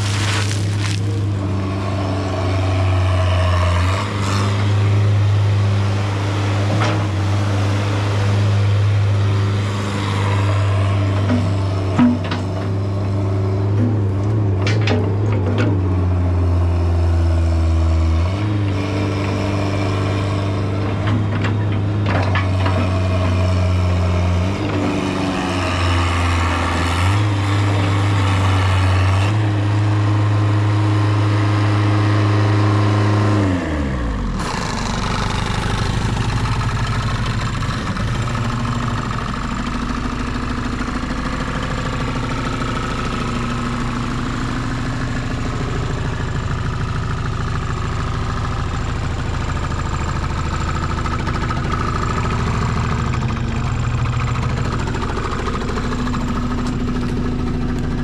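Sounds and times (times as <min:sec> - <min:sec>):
excavator engine running: 0:00.0 - 0:58.0
excavator bucket knocking and clanking: 0:11.2 - 0:13.1, 0:13.7 - 0:15.9.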